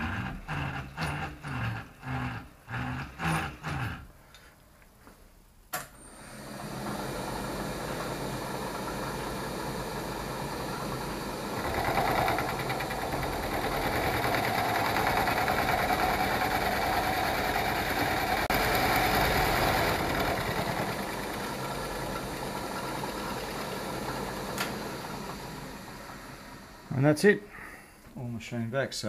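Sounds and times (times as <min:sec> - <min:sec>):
milling machine cutting metal: 0:06.3 - 0:27.0.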